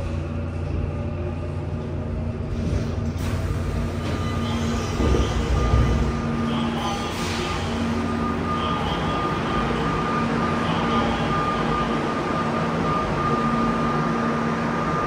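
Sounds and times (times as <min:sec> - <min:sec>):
subway train humming: 0:00.0 - 0:15.0.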